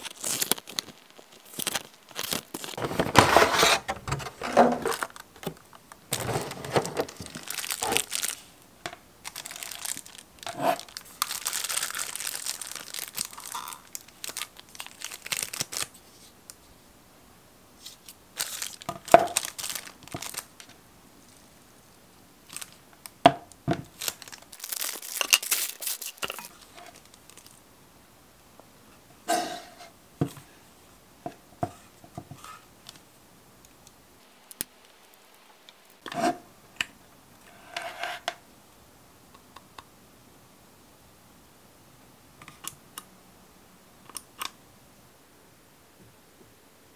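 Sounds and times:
plastic packaging crinkling: 0.0 - 8.6, 9.2 - 16.1, 17.8 - 20.8, 22.4 - 23.2, 23.8 - 27.6.

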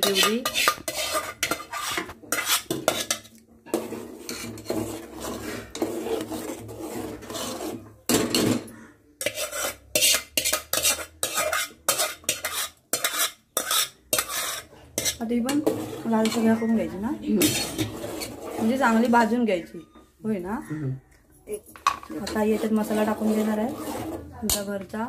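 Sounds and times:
paste frying: 0.0 - 8.6, 9.2 - 19.4, 21.8 - 25.0
spoon stirring and scraping pan: 0.0 - 20.2, 21.5 - 25.0.

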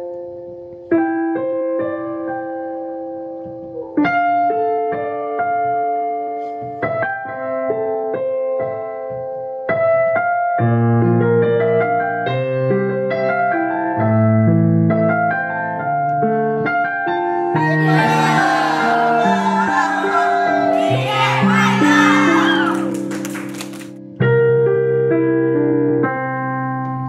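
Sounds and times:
piano music: 14.3 - 27.0
children cheering: 17.5 - 23.9.

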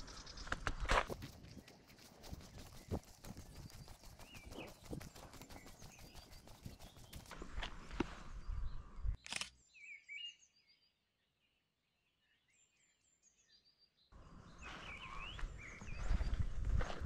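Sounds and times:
small birds chirping: 0.0 - 16.7
footsteps and rustling: 0.5 - 8.3, 14.6 - 17.0
sharp click: 9.2 - 9.6.

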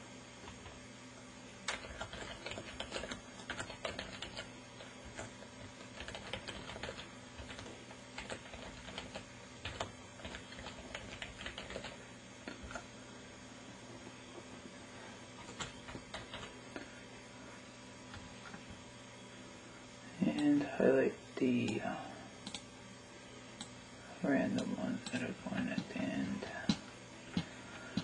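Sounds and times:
typing on computer keyboard: 1.7 - 12.0, 15.5 - 16.5.

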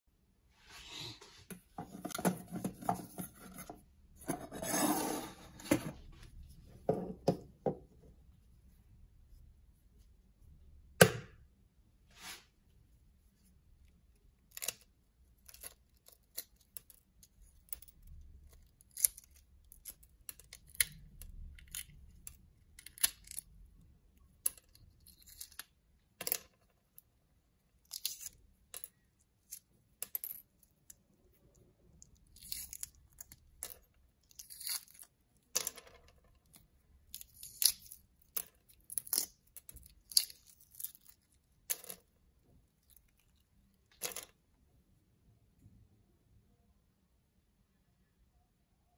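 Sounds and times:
egg shell cracking: 36.5 - 41.8.

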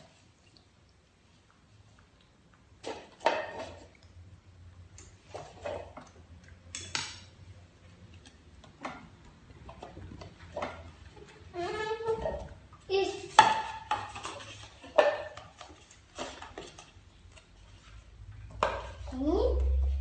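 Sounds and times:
cups tapping on table: 13.4 - 15.6.

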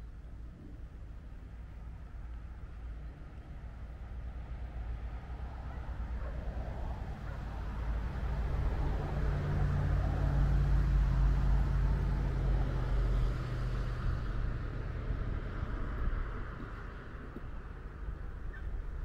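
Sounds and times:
vehicle engine passing by: 5.1 - 18.7.

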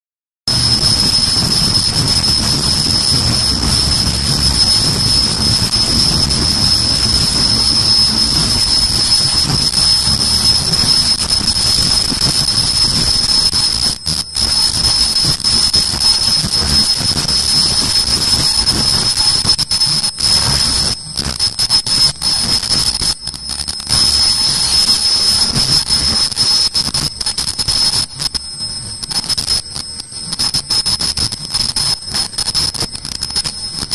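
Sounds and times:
machine low rumble: 0.5 - 20.8
machine high-pitched whine: 0.5 - 33.9.

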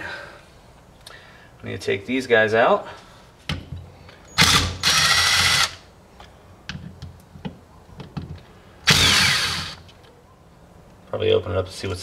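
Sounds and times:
impact driver hammering: 8.9 - 9.8.

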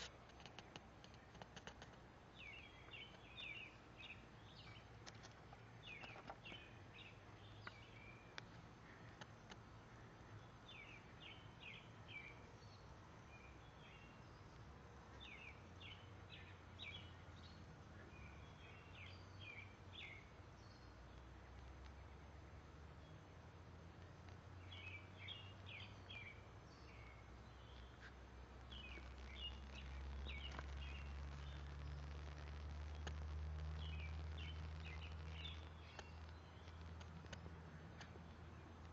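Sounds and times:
faint clicks: 0.0 - 2.1, 27.8 - 38.9
faint songbird singing: 0.0 - 38.9.

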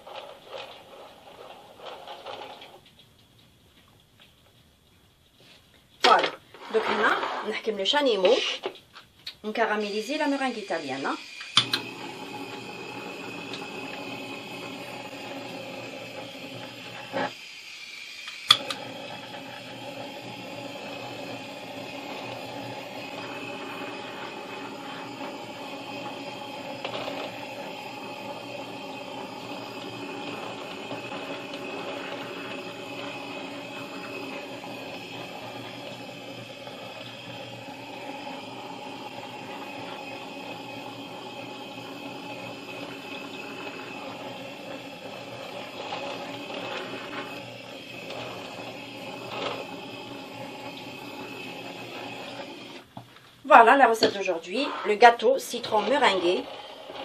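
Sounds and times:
blowtorch flame hissing: 0.0 - 2.8, 9.4 - 57.0
blowtorch igniter click: 11.4 - 15.2, 18.2 - 19.0.

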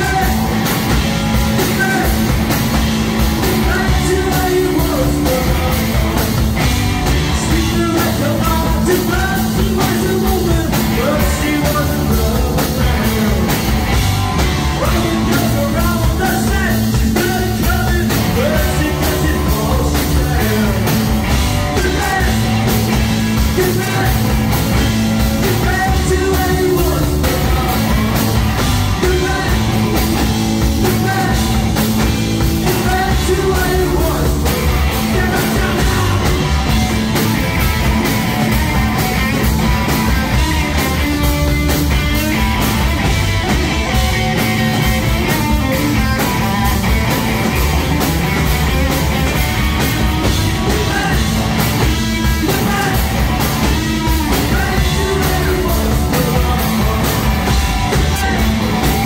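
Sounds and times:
person singing: 0.0 - 2.5, 3.4 - 6.4, 7.1 - 13.8, 14.7 - 36.9, 50.2 - 59.0
drum kit: 0.0 - 59.0
electric bass: 0.0 - 59.0
electric guitar: 0.0 - 59.0.

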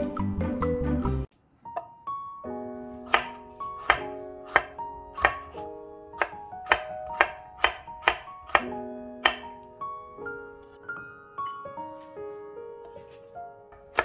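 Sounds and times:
knife tapping on cutting board: 3.1 - 5.4, 6.2 - 9.5.

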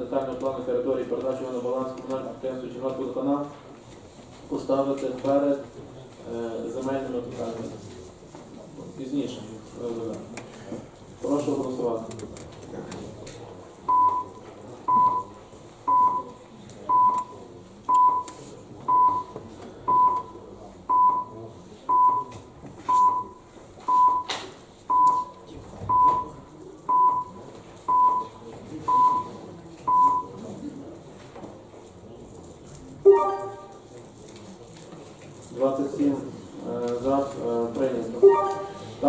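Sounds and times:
short countdown beeps: 13.9 - 24.3, 24.9 - 30.4, 33.1 - 33.8, 38.2 - 39.0.

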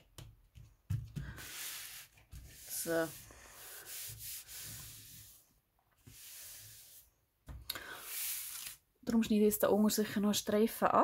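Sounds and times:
hands rubbing paper: 1.1 - 7.1, 7.9 - 8.8.

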